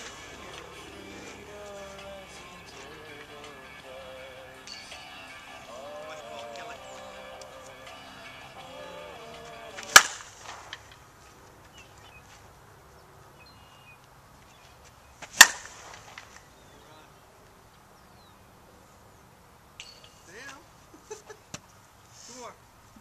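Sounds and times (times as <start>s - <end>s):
softball bat hitting ball: 9.7s - 11.0s, 15.2s - 16.4s.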